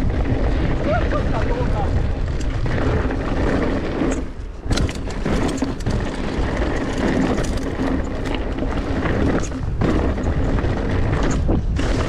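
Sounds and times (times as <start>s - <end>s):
bike tyres and frame rattling: 0.0s - 12.0s
wind rush on microphone: 0.0s - 12.0s.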